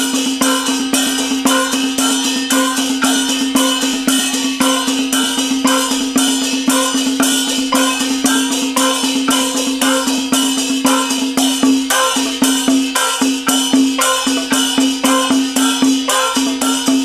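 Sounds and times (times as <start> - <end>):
gongs and cymbals struck: 0.0 - 17.0.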